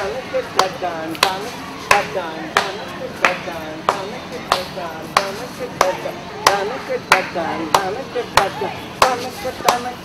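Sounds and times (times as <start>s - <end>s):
voices: 0.0s - 10.0s.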